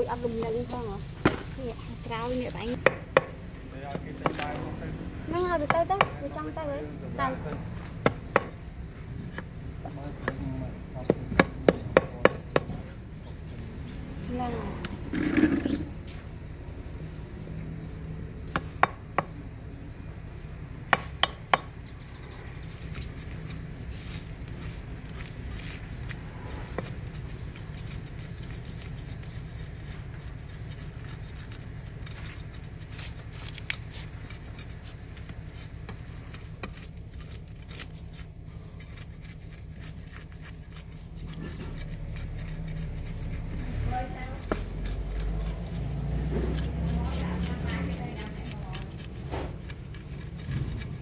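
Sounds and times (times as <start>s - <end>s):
knife cutting and scraping fish: 1.6s - 2.8s, 8.1s - 10.5s, 21.2s - 51.0s.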